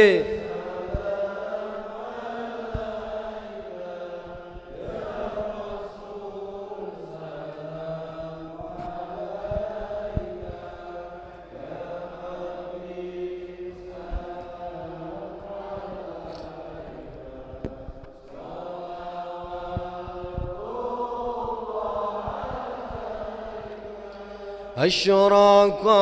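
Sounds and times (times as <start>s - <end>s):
men chanting: 0.0s - 26.0s
low thumps: 19.4s - 23.8s.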